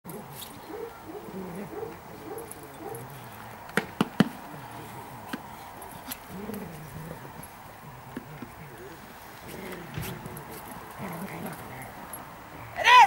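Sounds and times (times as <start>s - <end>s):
dog growling low: 0.1s - 3.3s, 6.2s - 7.6s, 8.7s - 12.2s.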